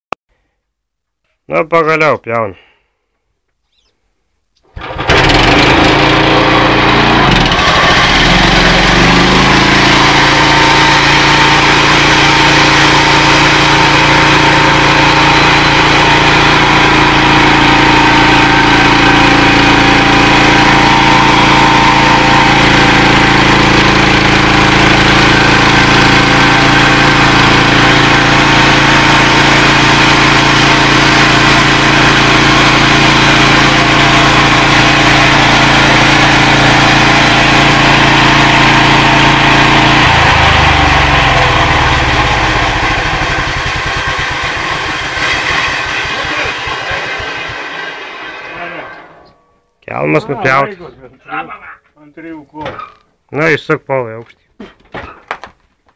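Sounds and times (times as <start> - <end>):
small gasoline engine running: 4.7 - 48.9
band saw blade cutting wood: 39.3 - 49.2.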